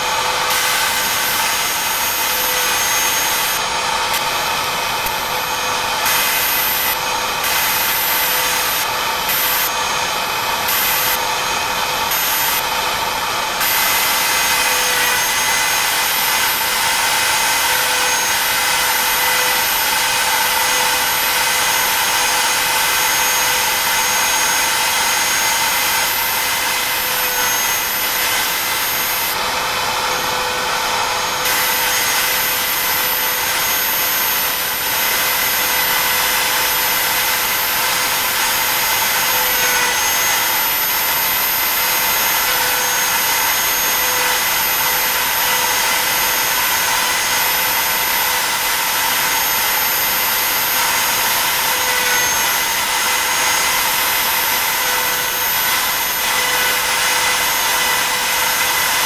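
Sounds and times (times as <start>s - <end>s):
hiss of bit cutting wood: 0.0s - 59.0s
router spindle motor whining: 0.0s - 59.0s.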